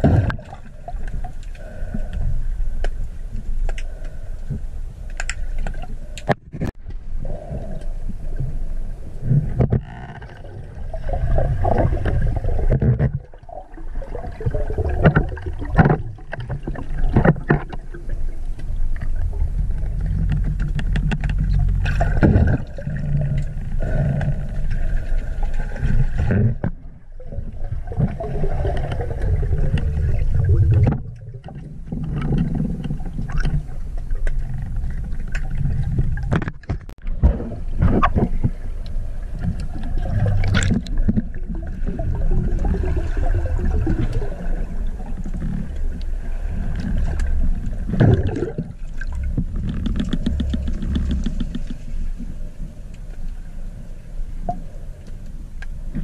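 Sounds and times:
water rushing and gurgling underwater: 0.0s - 56.0s.

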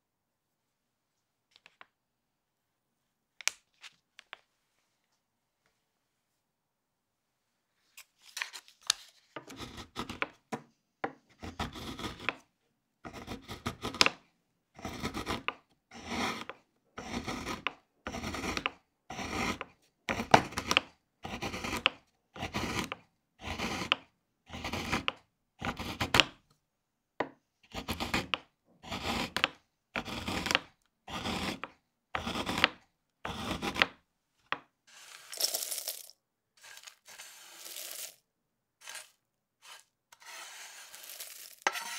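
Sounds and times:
knife scraping the board: 14.8s - 26.2s, 27.7s - 34.0s, 38.8s - 41.9s
knife chopping on wooden board: 16.1s - 26.3s, 27.2s - 34.0s.

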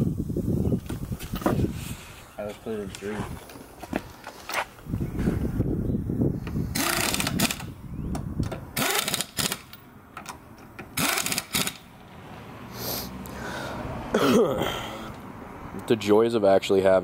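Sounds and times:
pneumatic impact wrench rattling: 6.7s - 7.8s, 8.4s - 11.9s.

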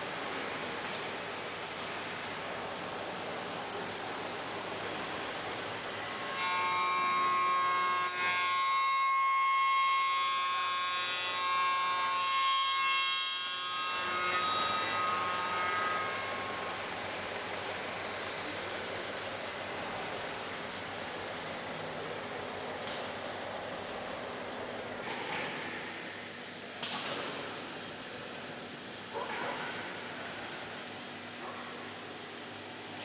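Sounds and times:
router spindle high whine: 3.0s - 25.1s.

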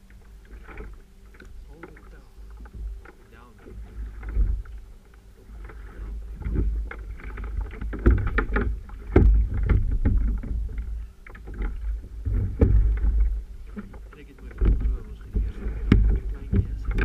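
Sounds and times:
water splashing against hull: 0.0s - 17.0s
wind buffeting microphone: 5.5s - 17.0s
sharp knocks: 6.4s - 17.0s.

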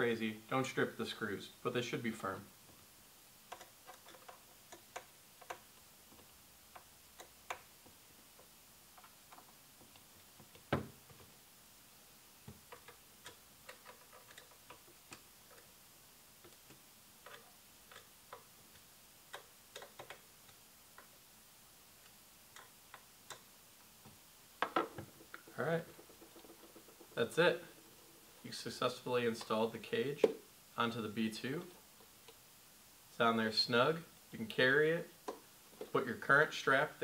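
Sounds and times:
screwdriver clicking and ticking: 19.3s - 21.1s.

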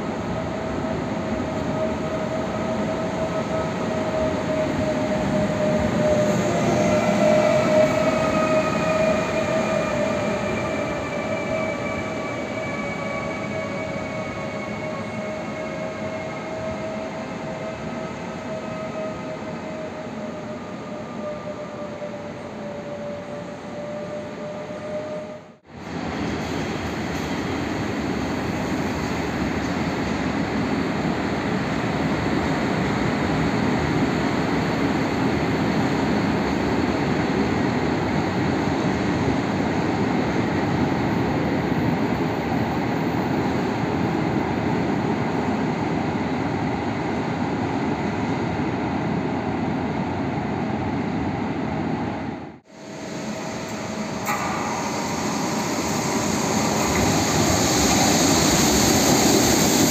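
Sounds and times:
electric locomotive approaching: 0.0s - 59.9s
train wheels rolling: 52.8s - 59.9s.

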